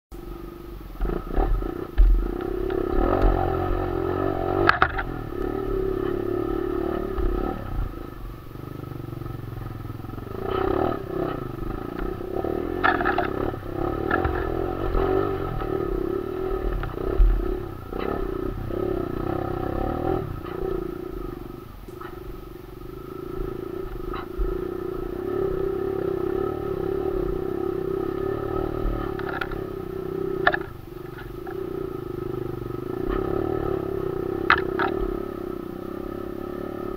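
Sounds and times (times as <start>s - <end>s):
motorbike engine revving: 0.2s - 36.9s
bike knocking and rattling: 1.0s - 8.5s, 9.8s - 15.8s, 28.9s - 29.7s, 30.4s - 31.7s, 34.3s - 35.1s.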